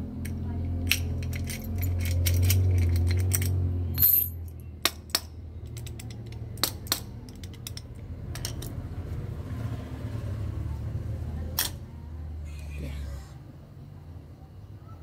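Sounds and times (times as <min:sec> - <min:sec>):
keys clinking on concrete: 0:00.2 - 0:08.7.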